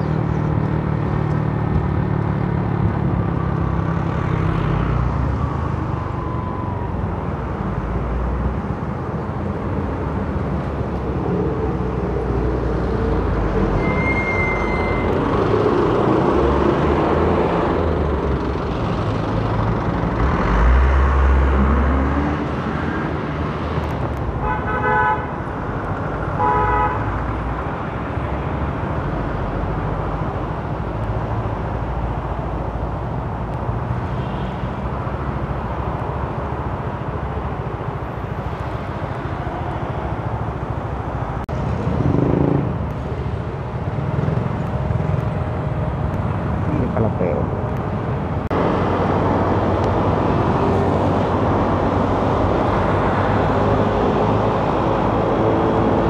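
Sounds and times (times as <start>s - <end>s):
road traffic noise: 0.0s - 56.0s
vehicle horn tooting: 24.4s - 25.3s, 26.4s - 27.0s.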